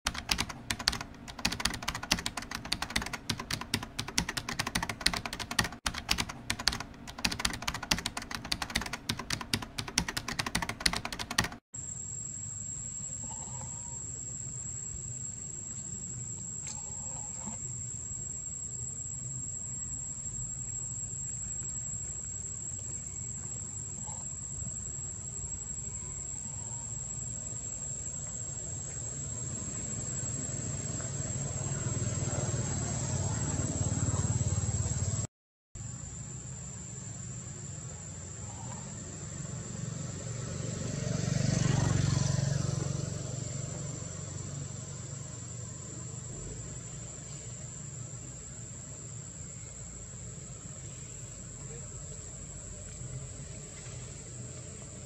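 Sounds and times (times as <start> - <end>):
computer keyboard typing: 0.1 - 11.6.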